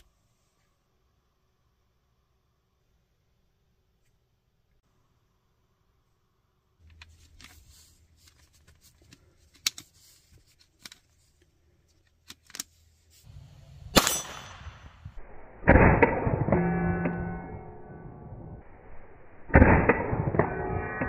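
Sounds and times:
loud gunshot: 13.9 - 16.6.

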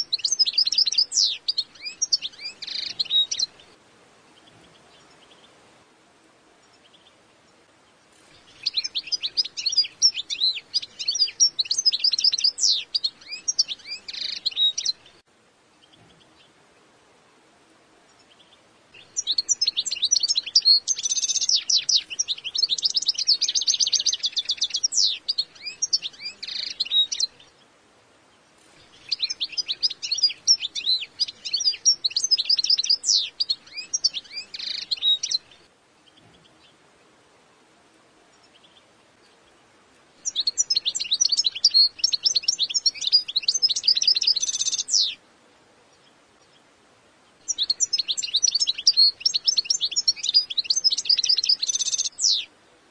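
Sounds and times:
goldfinch twittering song: 0.0 - 3.8, 7.9 - 15.2, 18.1 - 27.7, 28.7 - 36.8, 38.3 - 45.2, 46.0 - 52.5.

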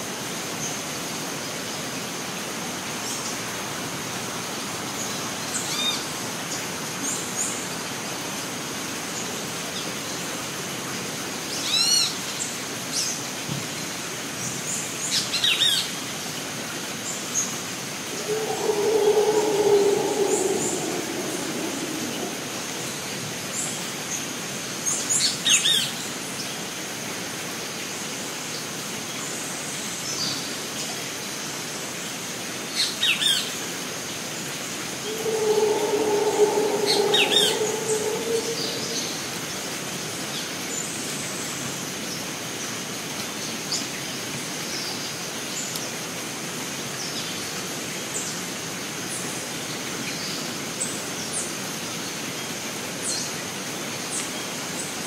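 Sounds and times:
low drawn-out animal call: 18.1 - 23.2, 35.0 - 39.6
insect drone: 18.1 - 23.3, 35.0 - 39.6.

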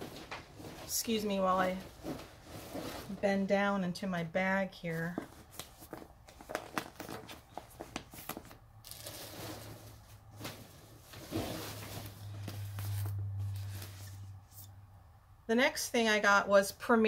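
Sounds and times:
shopping bag rustling: 4.9 - 14.3.

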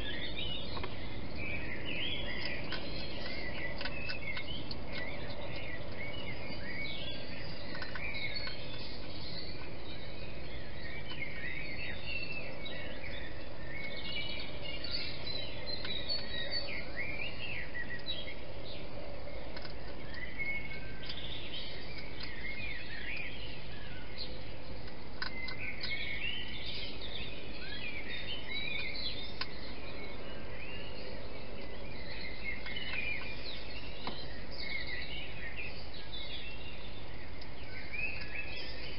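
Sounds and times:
birds chirping: 0.0 - 38.9
steady background hiss: 0.0 - 38.9.

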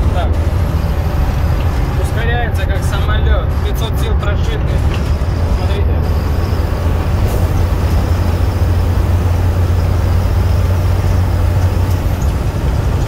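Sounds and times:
road and wind noise: 0.0 - 13.0
truck engine drone from cab: 0.0 - 13.0.

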